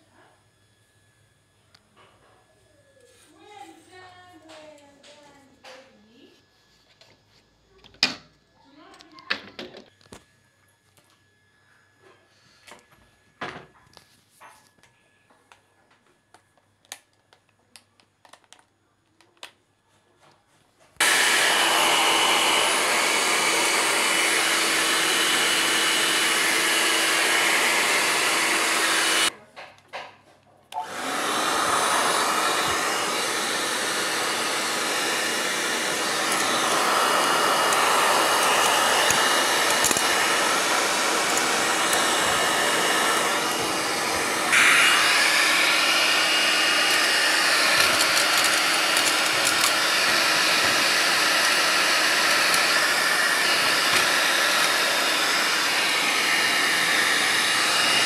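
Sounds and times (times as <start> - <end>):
hair dryer blowing air: 21.0 - 29.3, 30.8 - 58.0.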